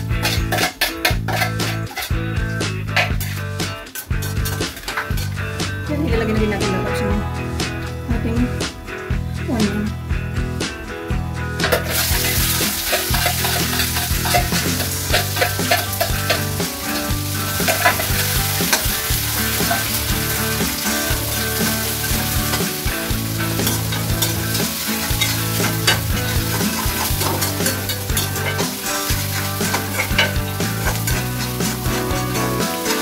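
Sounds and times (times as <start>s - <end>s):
metal spatula scraping pan: 0.2s - 2.1s, 11.6s - 20.6s, 23.5s - 33.0s
onions sizzling in hot oil: 11.8s - 33.0s.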